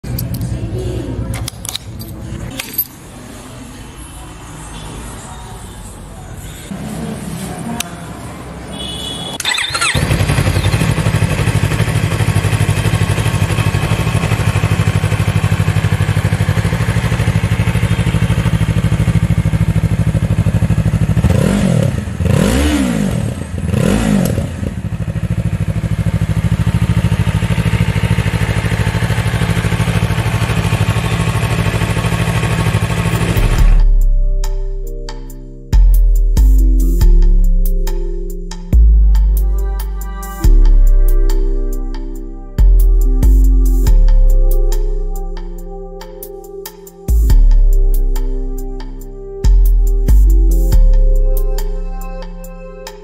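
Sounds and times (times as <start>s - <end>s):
motorcycle engine idling: 8.8s - 21.4s, 24.6s - 33.8s
electric starter cranking: 9.4s - 10.9s
engine revving: 9.4s - 17.2s, 21.1s - 25.2s.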